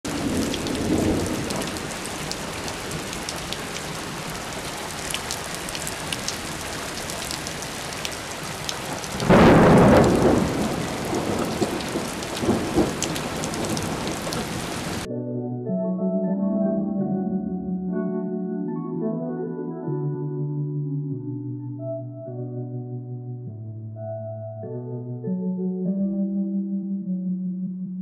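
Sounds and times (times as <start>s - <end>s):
heavy rain on puddles: 0.1s - 15.1s
loud rumbling burst: 9.2s - 11.6s.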